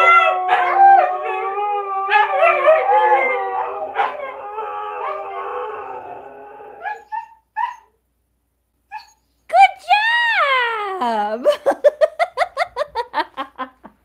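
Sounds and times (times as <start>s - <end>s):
dogs howling: 0.0s - 7.2s.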